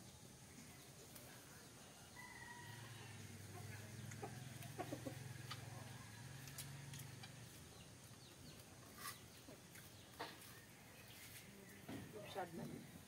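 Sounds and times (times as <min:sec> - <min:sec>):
small birds chirping: 0:00.0 - 0:13.0
chickens clucking: 0:03.4 - 0:11.2.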